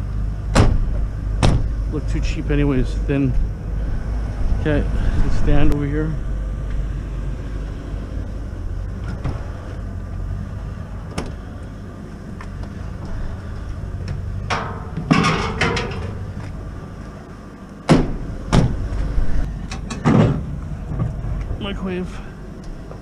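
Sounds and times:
vehicle engine idling: 0:00.0 - 0:23.0
scrap metal clattering: 0:14.4 - 0:16.4.

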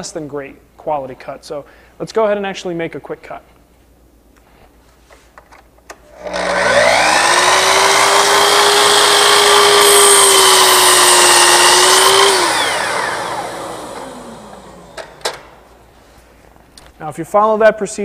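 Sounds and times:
saw blade cutting wood: 0:06.2 - 0:15.2
miter saw motor whine: 0:06.2 - 0:15.3.

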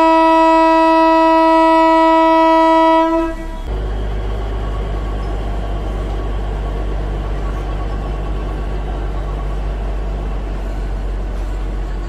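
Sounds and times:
train horn blast: 0:00.0 - 0:03.7
train rumbling: 0:00.0 - 0:12.0.

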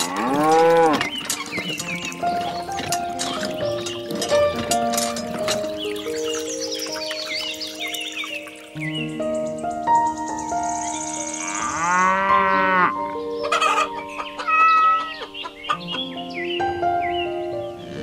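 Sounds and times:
cow mooing: 0:00.0 - 0:01.1, 0:11.4 - 0:13.0
background music with sustained notes: 0:00.0 - 0:18.0
chicken clucking: 0:13.4 - 0:16.0.

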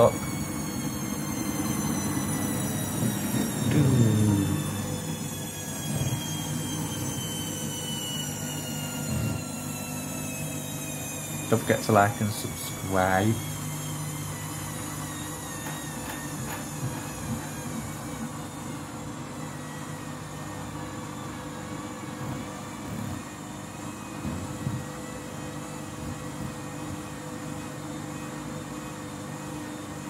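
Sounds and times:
washing machine motor hum: 0:00.0 - 0:30.0.

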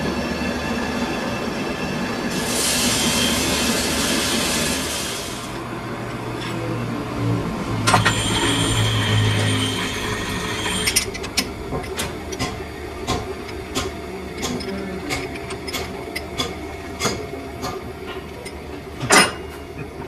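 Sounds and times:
metal lathe humming and whining: 0:00.0 - 0:20.0.

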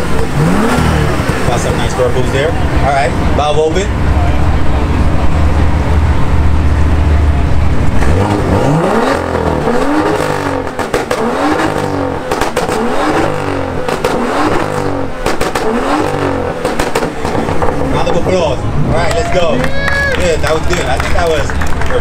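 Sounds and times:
exhaust pops and crackles: 0:00.0 - 0:02.5, 0:07.8 - 0:22.0
car engine revving: 0:00.0 - 0:19.5
car engine idling: 0:00.0 - 0:22.0.

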